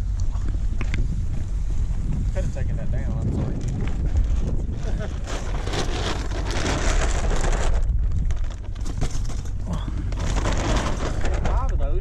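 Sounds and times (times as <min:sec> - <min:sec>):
wind buffeting microphone: 0:00.0 - 0:12.0
plastic bag crackling: 0:04.7 - 0:11.7.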